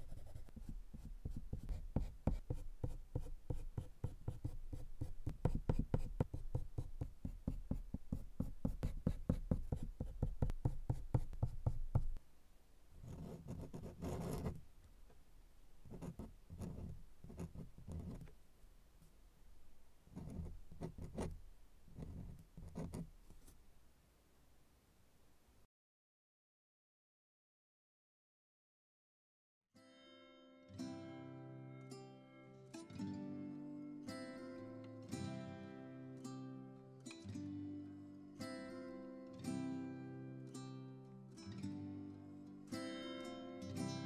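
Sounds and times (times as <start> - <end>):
colored pencil scratching on paper: 0.0 - 12.2, 13.0 - 14.6, 15.9 - 18.2, 20.1 - 23.6
dip-pen nib scratching paper: 0.0 - 12.2, 13.0 - 14.6, 15.9 - 18.2, 20.2 - 21.4, 22.0 - 23.1.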